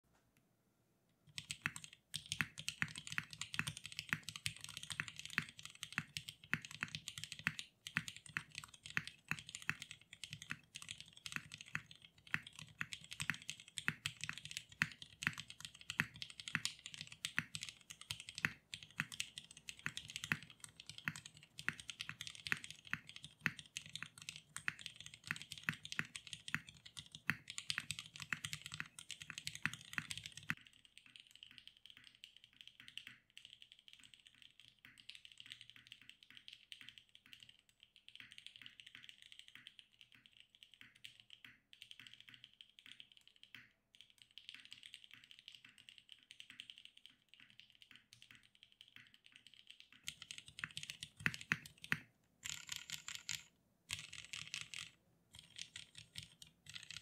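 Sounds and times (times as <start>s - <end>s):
mechanical keyboard typing: 1.3s - 57.0s.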